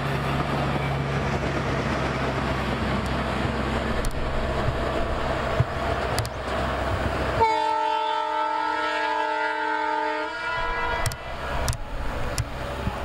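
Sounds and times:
multi-tone horn blast: 0:07.4 - 0:11.4.

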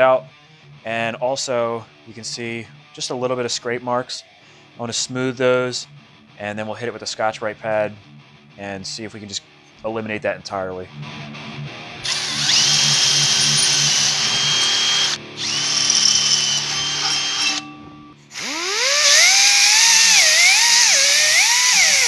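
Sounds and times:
cordless drill drilling rivets: 0:12.0 - 0:17.6, 0:18.3 - 0:22.0
abrasive wheel whining on metal: 0:12.1 - 0:17.7, 0:18.3 - 0:22.0.

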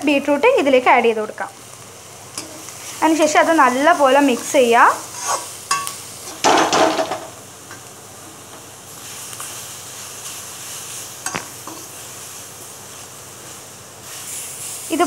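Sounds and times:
faint sizzling: 0:00.0 - 0:15.0
metal spatula scraping pan: 0:03.6 - 0:06.5.

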